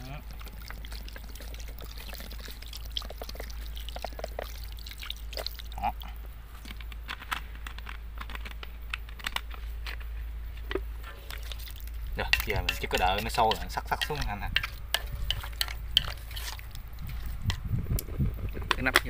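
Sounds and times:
water pouring into a pot: 0:00.0 - 0:06.0, 0:11.3 - 0:13.5.

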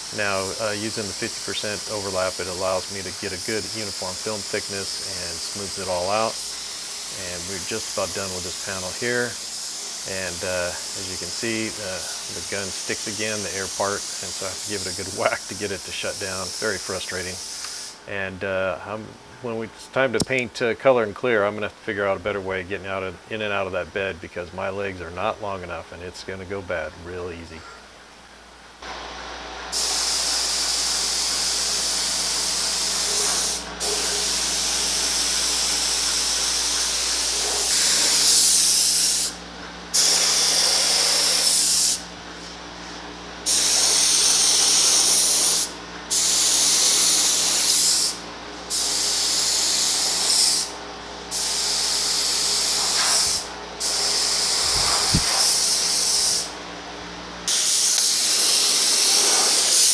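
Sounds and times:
paint spray gun hissing: 0:00.0 - 0:18.0, 0:29.7 - 0:42.5, 0:43.4 - 0:56.6, 0:57.5 - 0:59.9.

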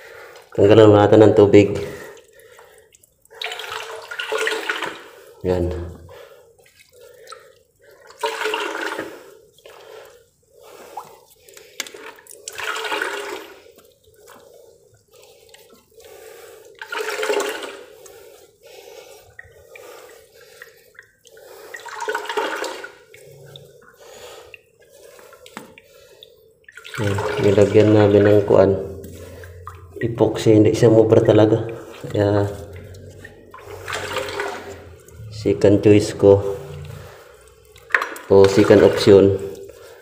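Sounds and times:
water spraying and splashing: 0:26.8 - 0:40.0.

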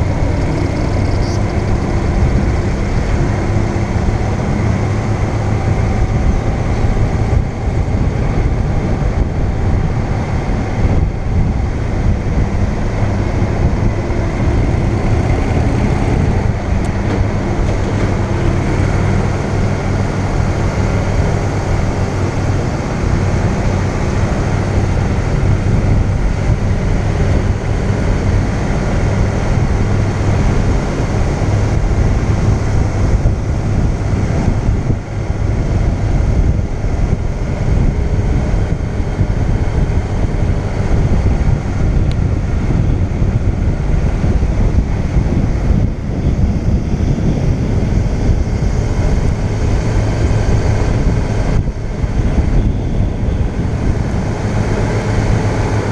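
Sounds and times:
motorcycle engine running: 0:00.0 - 0:55.9
road and wind noise: 0:00.0 - 0:55.9.

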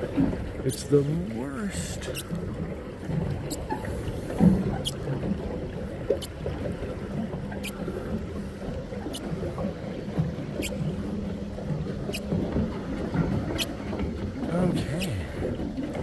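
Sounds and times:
water churning and splashing: 0:00.0 - 0:16.0.

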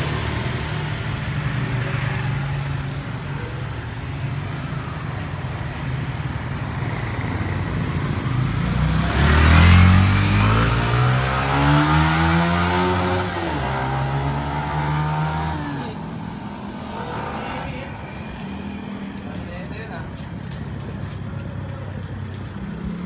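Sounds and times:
traffic hum: 0:00.0 - 0:23.0
vehicle engine passing by: 0:08.0 - 0:19.2.

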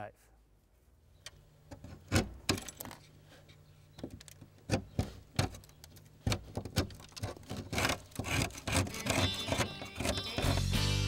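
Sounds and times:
putty knife scraping putty: 0:07.2 - 0:10.7.

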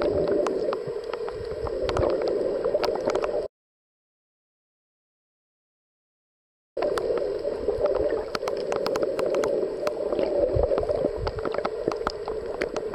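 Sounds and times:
sharp underwater clicks and crackles: 0:00.0 - 0:03.5, 0:06.8 - 0:12.9
muffled underwater noise: 0:06.8 - 0:12.9.

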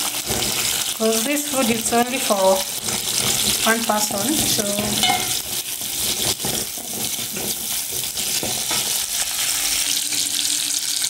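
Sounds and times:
onions sizzling in hot oil: 0:00.0 - 0:11.0
spatula scraping and tapping pot: 0:02.6 - 0:09.6.

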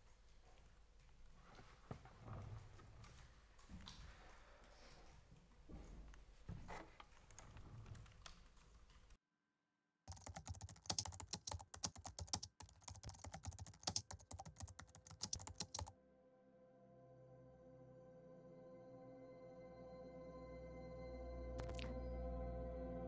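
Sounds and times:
computer keyboard typing: 0:10.1 - 0:15.9, 0:21.6 - 0:21.9
soft ambient music: 0:16.0 - 0:23.0.

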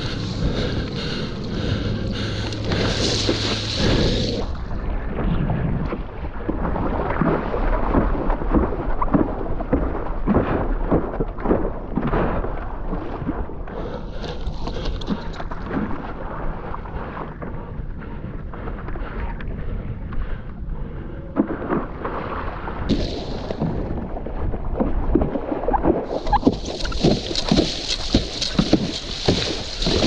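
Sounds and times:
paddle splashes in water: 0:00.0 - 0:04.8, 0:05.8 - 0:13.5, 0:21.4 - 0:30.0
wind rumbling on microphone: 0:00.0 - 0:30.0.

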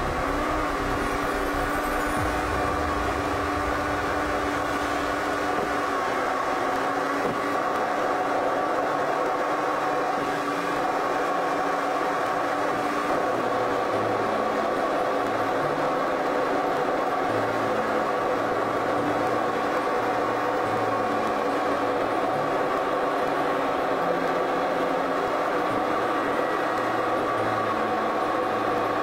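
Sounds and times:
steady tones: 0:00.0 - 0:07.2
car engine and road noise: 0:00.0 - 0:13.9.

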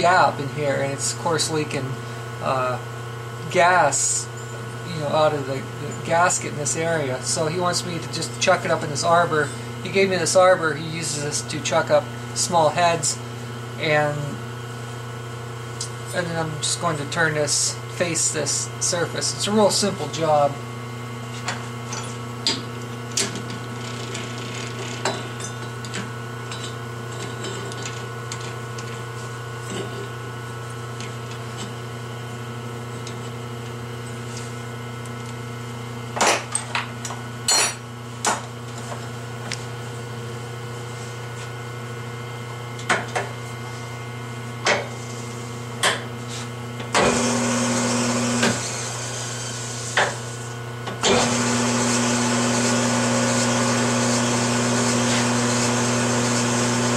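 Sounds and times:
lathe running with whirr: 0:40.2 - 0:56.9.

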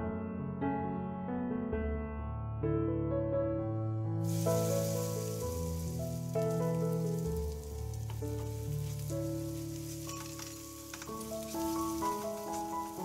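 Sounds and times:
instrumental background music: 0:03.8 - 0:13.0
batter sizzling in hot oil: 0:04.2 - 0:13.0.

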